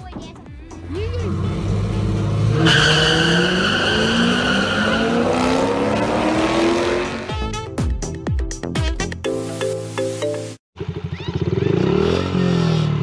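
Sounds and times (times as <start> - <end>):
car engines revving hard: 0.8 - 7.3.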